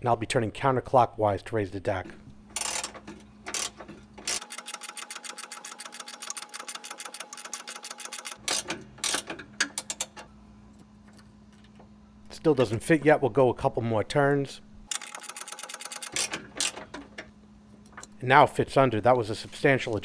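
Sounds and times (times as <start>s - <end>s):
ratcheting wrench clicking: 2.6s - 10.2s, 14.9s - 17.3s.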